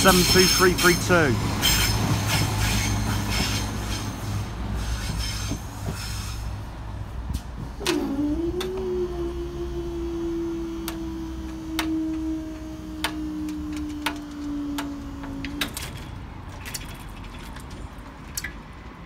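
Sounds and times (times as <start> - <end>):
barrier motor humming: 7.5 - 16.5.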